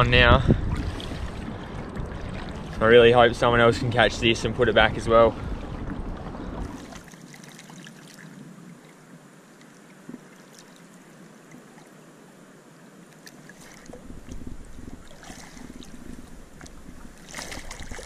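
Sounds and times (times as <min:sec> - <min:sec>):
water lapping against hull: 0:00.0 - 0:12.0, 0:13.1 - 0:18.0
small splashes: 0:00.7 - 0:03.2, 0:05.3 - 0:09.0, 0:10.0 - 0:12.0, 0:13.1 - 0:18.0.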